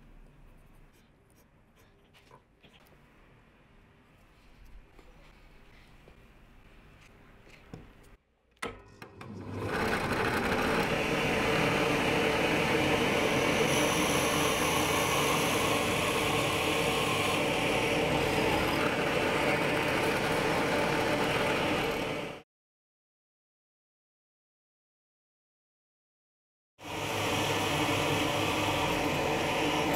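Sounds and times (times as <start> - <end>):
drill press boring wood: 9.1 - 22.4, 26.8 - 29.9.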